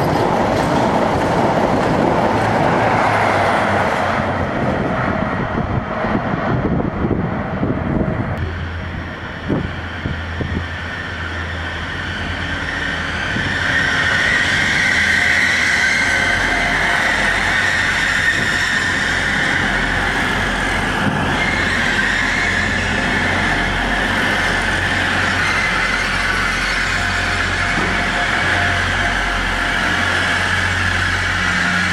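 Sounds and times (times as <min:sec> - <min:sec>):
train engine and wheels: 0:00.0 - 0:31.9
train rumbling past: 0:00.0 - 0:31.9
high-pitched squeal: 0:08.4 - 0:31.9.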